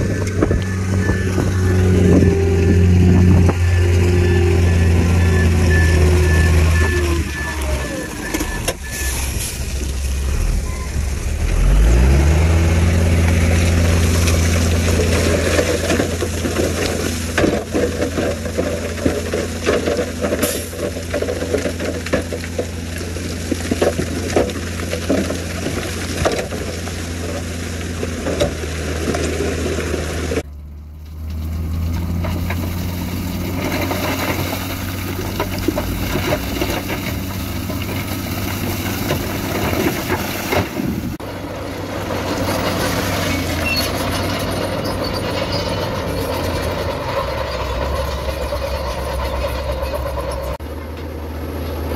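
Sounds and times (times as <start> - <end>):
diesel truck engine revving: 0.0 - 17.4, 28.5 - 51.9
rock clattering out of truck bed: 14.0 - 30.0.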